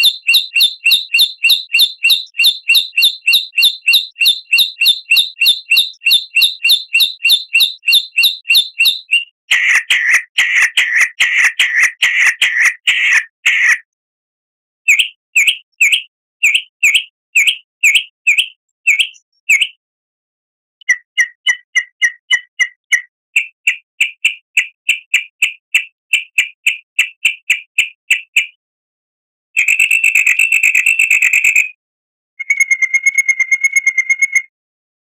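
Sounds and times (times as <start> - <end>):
songbird chirps: 0.0 - 9.3, 14.9 - 19.8.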